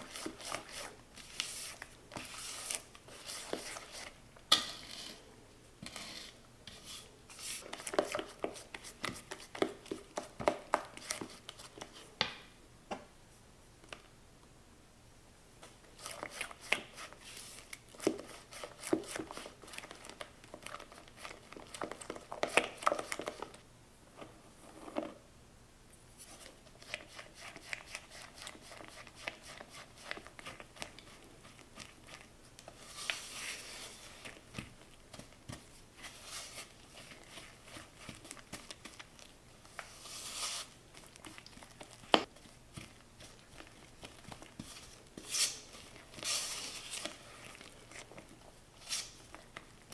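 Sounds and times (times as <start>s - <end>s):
spatula scraping batter in bowl: 0.0s - 5.2s, 5.8s - 10.3s.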